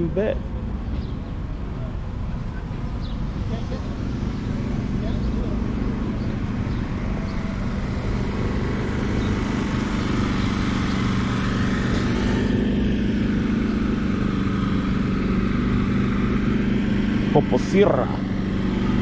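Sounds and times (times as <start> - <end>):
engine idling: 0.0 - 19.0.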